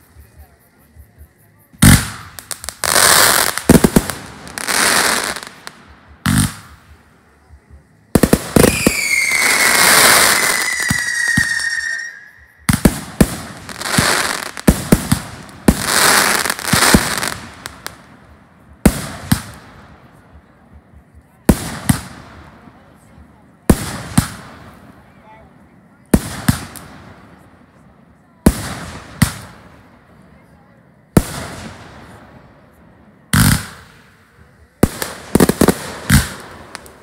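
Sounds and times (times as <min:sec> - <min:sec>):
fireworks bangs and crackling: 0:01.7 - 0:37.0
hissing falling whistle: 0:08.7 - 0:12.6.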